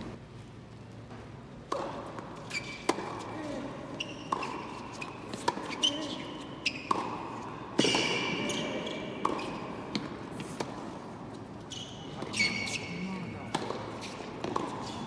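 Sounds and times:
shoes squeaking: 2.4 - 10.6, 11.3 - 15.0
ball bouncing on court: 4.0 - 7.2, 7.8 - 10.8, 12.2 - 15.0
tennis ball hit by racket: 4.3 - 5.9, 6.8 - 7.2, 13.5 - 15.0.

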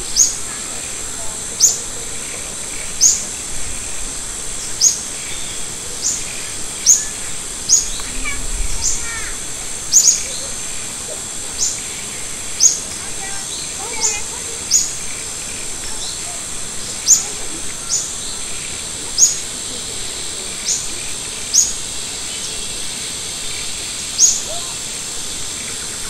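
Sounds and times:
steady high hiss: 0.0 - 26.0
bird chirping: 4.5 - 19.5, 20.4 - 24.7.

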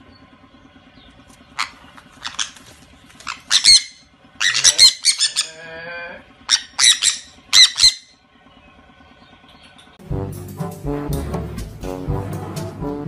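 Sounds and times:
parrots squawking: 1.5 - 5.8, 6.4 - 8.2.

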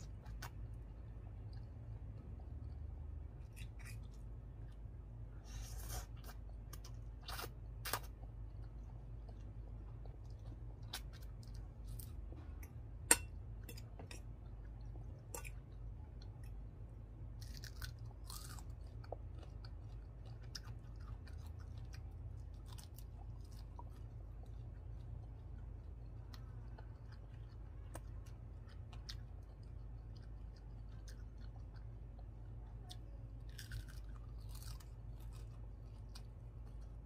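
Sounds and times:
chewing noodles: 13.6 - 37.0.

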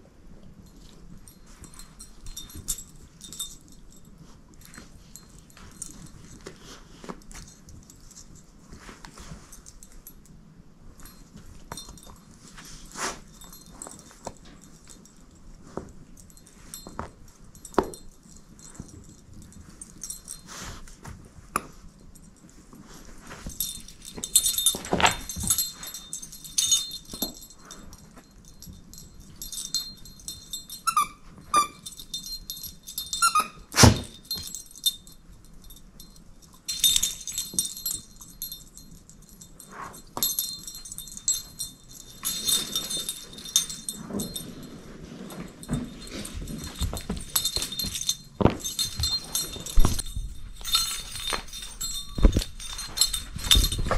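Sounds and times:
jingle bell jingling: 0.7 - 10.3, 10.9 - 20.9, 21.9 - 53.9.

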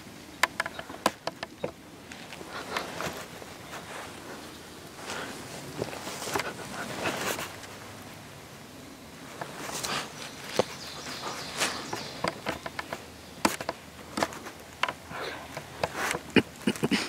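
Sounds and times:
footsteps crunching dry leaves: 9.6 - 12.2.

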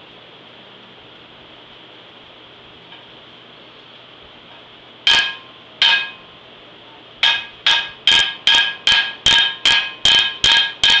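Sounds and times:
hammer ringing on metal: 5.1 - 6.3, 7.2 - 11.0.

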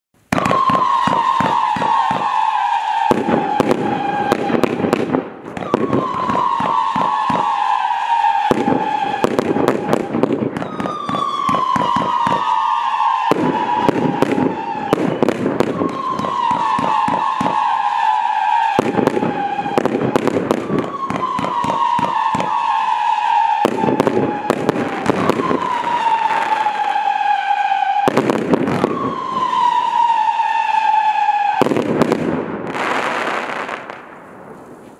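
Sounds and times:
firework cracks and pops: 0.3 - 27.0
firework whistles falling in pitch: 0.3 - 34.0.

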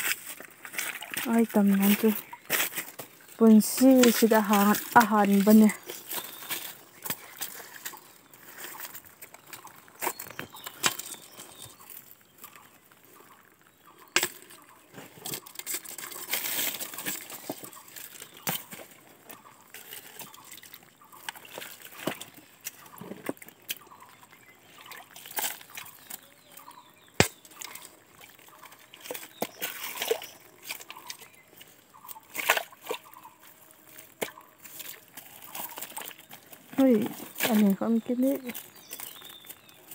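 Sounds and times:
stones and leaves shifting: 0.0 - 39.9
hands splashing in shallow water: 27.1 - 31.3.

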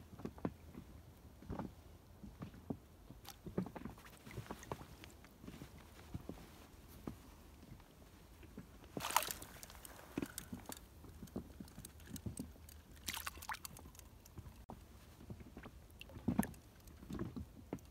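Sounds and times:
fish splashing at water surface: 9.0 - 14.6.

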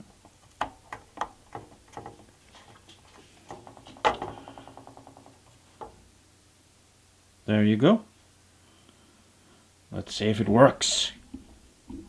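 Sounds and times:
rattle of ticks: 0.6 - 6.0.

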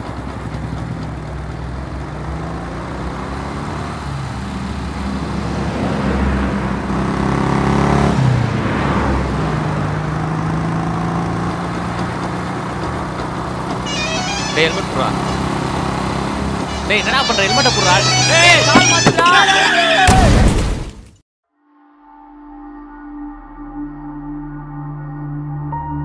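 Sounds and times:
motorcycle engine running: 0.0 - 5.0, 9.8 - 19.0.

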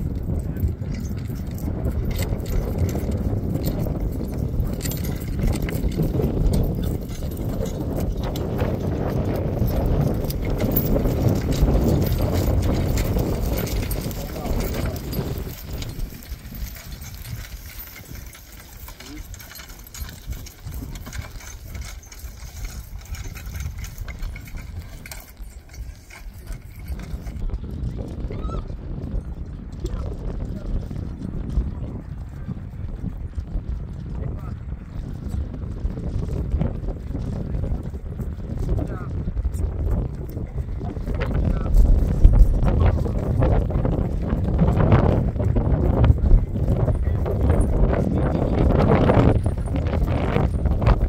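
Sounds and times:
steady low rumble: 0.0 - 21.7
harness fittings jingling: 0.0 - 27.5, 41.0 - 51.0
wind buffeting microphone: 0.0 - 51.0
hoof falls: 0.1 - 27.4.

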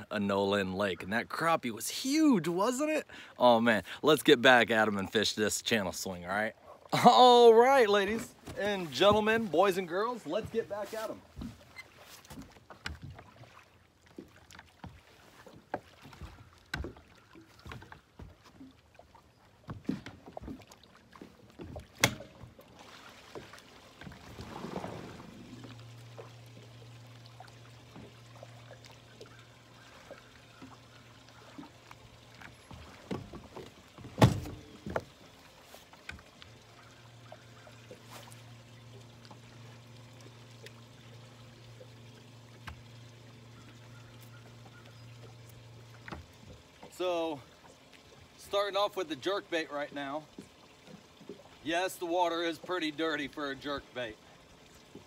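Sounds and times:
electric trolling motor humming: 8.9 - 55.0
knocks and clicks on boat deck: 21.3 - 22.6, 32.4 - 35.2.

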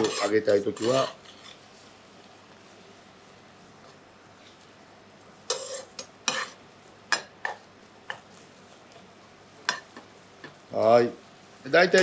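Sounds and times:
metal spoon scraping a pan: 0.0 - 1.7, 5.5 - 8.2
sauce simmering with bubbling hiss: 0.0 - 12.0.

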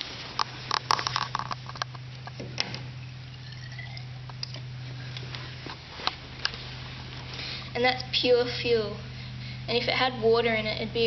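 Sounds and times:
steady low hum: 0.0 - 11.0
handling clicks knocks and rustles: 0.4 - 2.8.

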